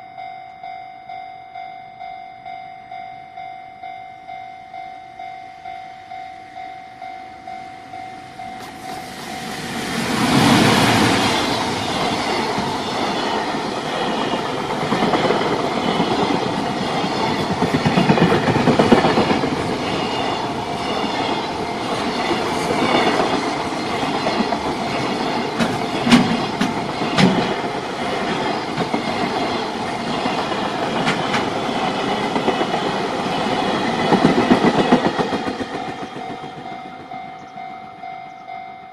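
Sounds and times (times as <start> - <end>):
level crossing bell ringing: 0.0 - 8.9, 36.3 - 38.9
electric locomotive passing: 2.0 - 38.9
train wheels clickety-clack: 8.5 - 37.7.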